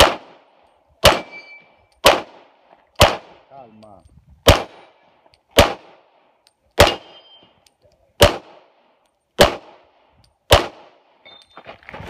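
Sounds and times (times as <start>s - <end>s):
pistol shots with echo: 0.0s - 3.5s, 4.4s - 7.4s, 8.2s - 8.8s, 9.4s - 11.2s.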